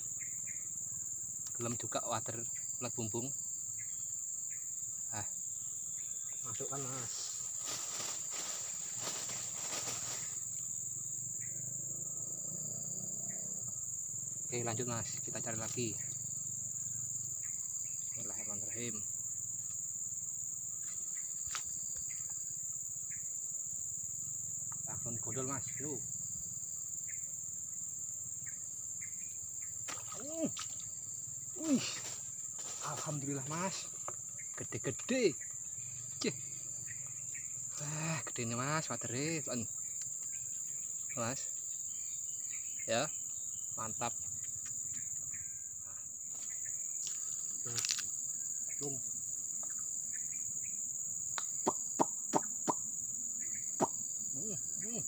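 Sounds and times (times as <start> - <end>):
crickets buzzing: 0.0 - 55.0
insects droning: 0.0 - 55.0
short cricket chirps: 0.0 - 55.0.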